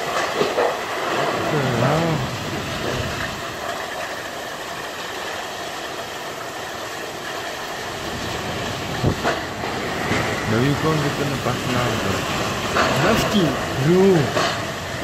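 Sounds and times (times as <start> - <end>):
strong wind rushing: 8.2 - 10.7.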